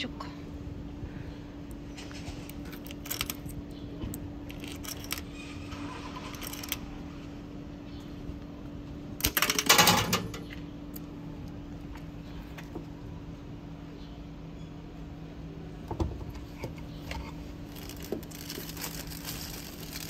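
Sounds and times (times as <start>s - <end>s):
vending machine rattling clatter: 1.9s - 3.7s, 4.4s - 6.9s, 9.2s - 10.5s, 16.4s - 20.0s
coins clinking into vending machine: 2.7s - 3.5s, 4.5s - 5.3s, 5.9s - 6.8s, 9.2s - 10.4s.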